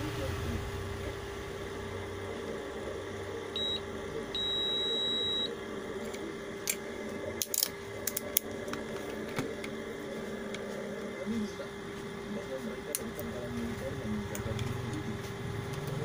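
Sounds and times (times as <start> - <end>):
multimeter continuity beeps: 3.5 - 5.6.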